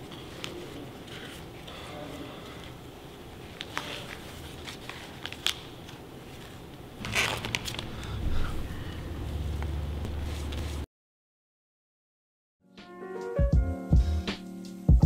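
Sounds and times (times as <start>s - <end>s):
paper wrapper crinkling: 3.4s - 8.2s.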